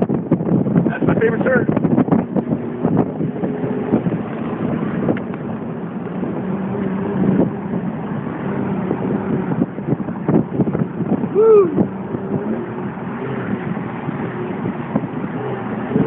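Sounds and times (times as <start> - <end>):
car engine drone: 0.0 - 16.0
road and wind noise: 0.0 - 16.0.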